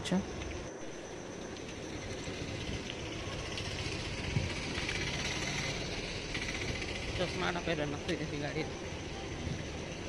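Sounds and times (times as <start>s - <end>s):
vehicle engines running: 0.0s - 10.0s.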